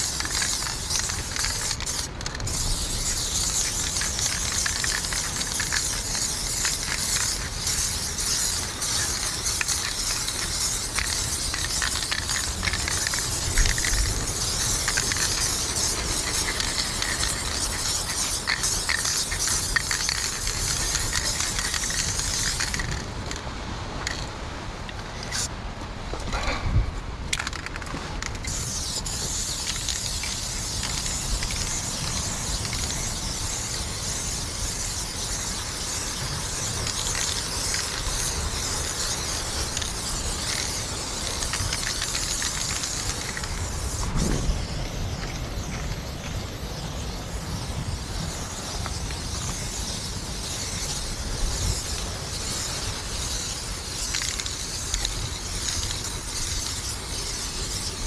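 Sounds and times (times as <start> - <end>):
spray paint can hissing: 0.0 - 23.4, 24.0 - 25.5, 27.3 - 58.0.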